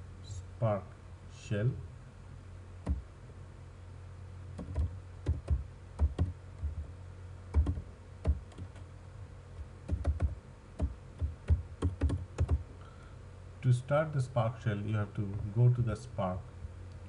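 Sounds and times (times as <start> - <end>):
low steady hum: 0.0 - 17.0
typing on computer keyboard: 7.6 - 8.8, 9.9 - 12.6.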